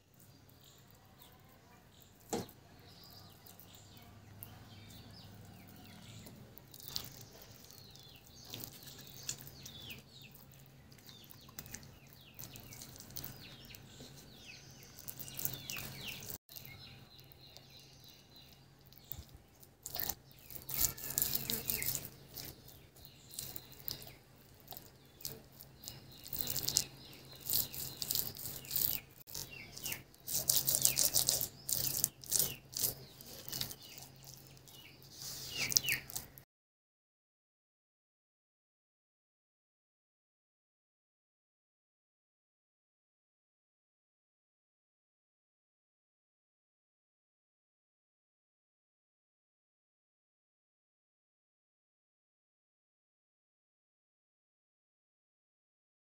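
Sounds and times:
birds chirping: 0.0 - 36.4.

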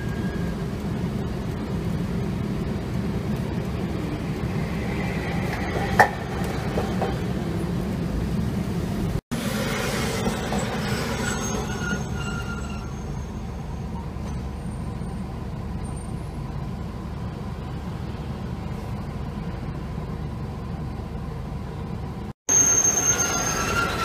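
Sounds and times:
tram brakes squealing: 0.0 - 1.2, 4.1 - 7.9, 9.4 - 16.9, 22.5 - 24.0
tram low rumble: 0.0 - 24.0.

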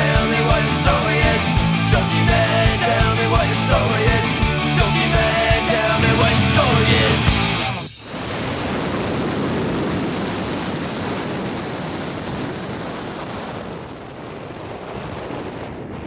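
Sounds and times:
wind rushing over microphone: 7.6 - 16.0.

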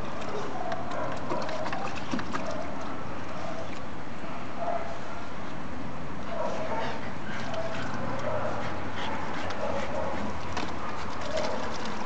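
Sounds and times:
dog splashing in water: 0.1 - 3.3, 9.2 - 12.0.

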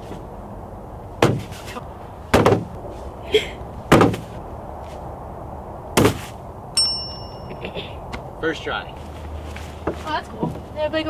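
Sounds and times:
bean bags thudding on wood: 1.2 - 1.6, 2.3 - 2.7, 3.9 - 4.3.

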